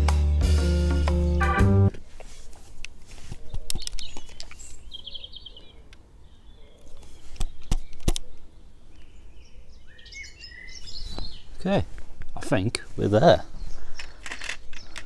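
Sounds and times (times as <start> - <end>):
birds chirping faintly: 2.8 - 15.0
camera body clicks and taps: 3.4 - 4.6, 7.4 - 8.3.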